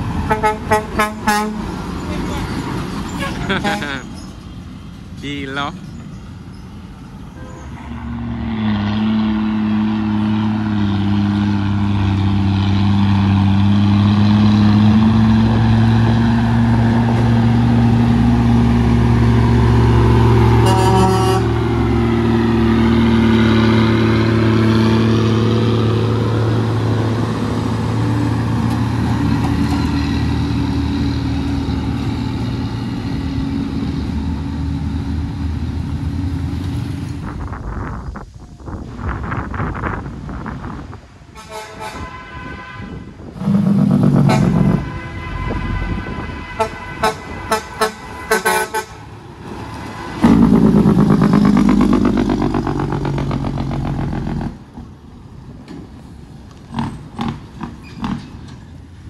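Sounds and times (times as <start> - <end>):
diesel truck engine running: 0.0 - 41.4, 43.1 - 59.0.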